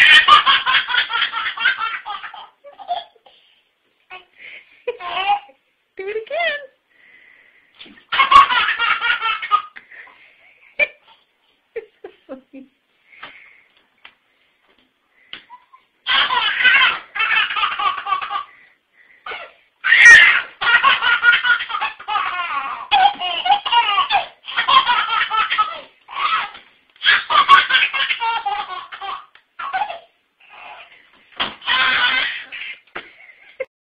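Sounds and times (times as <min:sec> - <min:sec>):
baby laughing: 0:00.0 - 0:03.3, 0:04.9 - 0:05.6, 0:07.9 - 0:09.8, 0:15.4 - 0:18.6, 0:19.3 - 0:31.0, 0:31.6 - 0:33.7.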